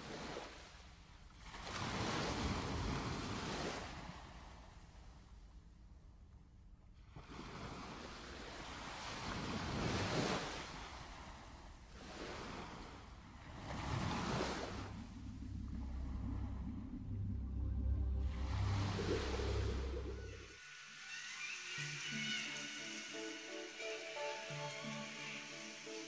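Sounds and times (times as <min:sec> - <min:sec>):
ocean waves washing in: 0:00.0 - 0:05.5, 0:07.0 - 0:26.0
low steady music note: 0:15.0 - 0:20.6.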